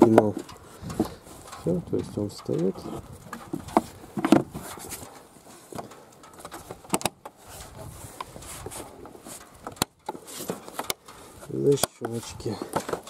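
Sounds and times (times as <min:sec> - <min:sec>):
plastic cover clicks and knocks: 0:05.8 - 0:07.4.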